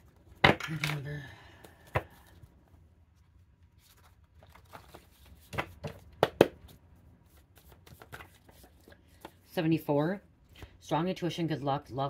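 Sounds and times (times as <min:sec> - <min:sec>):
paper rustling: 0:03.1 - 0:06.0, 0:07.2 - 0:09.4.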